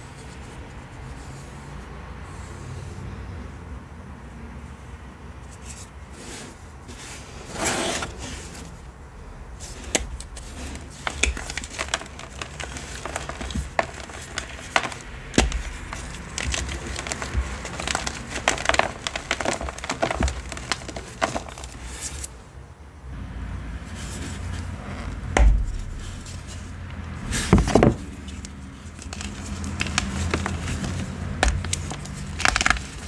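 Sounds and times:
chalk cracking and crumbling: 9.6s - 22.4s, 23.9s - 33.0s.

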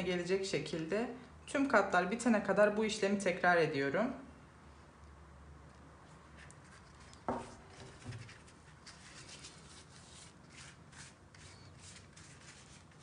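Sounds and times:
pastry sheets rustling: 6.1s - 13.0s
pastry brush swishing: 6.6s - 13.0s.

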